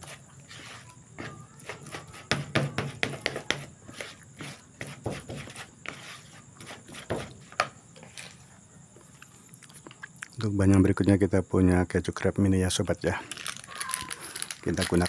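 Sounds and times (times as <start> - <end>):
plastic spoon scraping bowl: 0.0 - 0.9.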